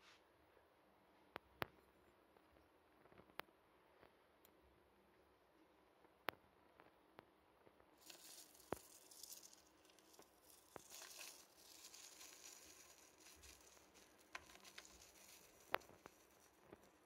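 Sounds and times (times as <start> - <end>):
insect rustling in sand: 8.0 - 17.0.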